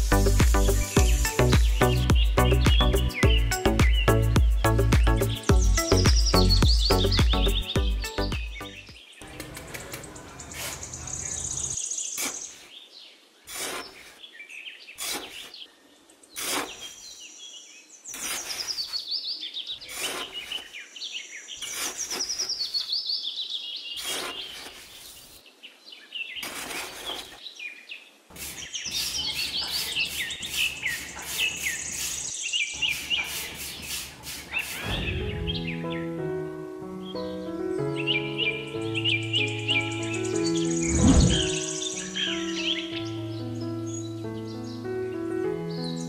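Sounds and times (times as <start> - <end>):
birds chirping: 0.0 - 46.0
trowel scraping damp sand: 12.0 - 12.8, 13.4 - 14.3, 14.9 - 15.7, 16.3 - 17.3, 18.1 - 20.9, 21.5 - 23.0, 23.9 - 25.4, 26.4 - 27.4, 28.3 - 35.1.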